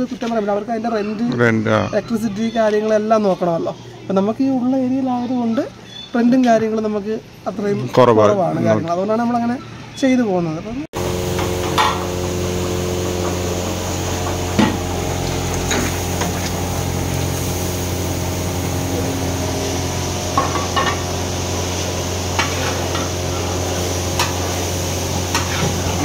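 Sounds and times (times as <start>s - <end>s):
mechanical hum: 0.0s - 26.0s
utensils clinking against pots: 20.3s - 21.3s, 25.2s - 26.0s.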